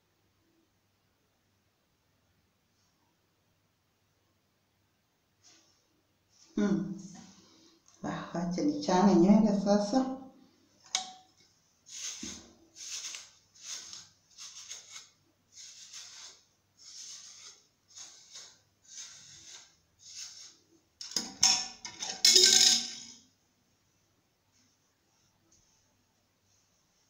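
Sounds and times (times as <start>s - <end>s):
comb strokes through hair: 11.9s - 20.7s.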